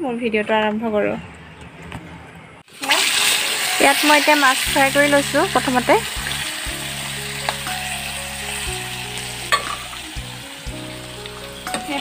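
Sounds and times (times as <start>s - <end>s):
fish sizzling in hot oil: 2.7s - 12.0s
metal spatula tapping: 9.5s - 9.8s.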